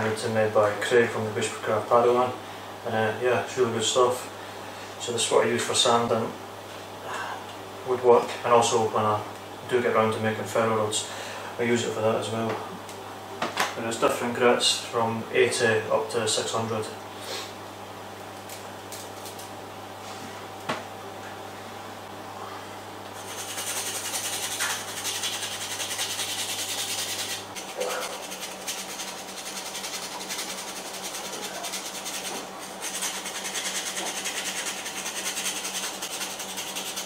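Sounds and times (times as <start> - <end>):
abrasive mesh sanding wood: 23.2 - 37.0.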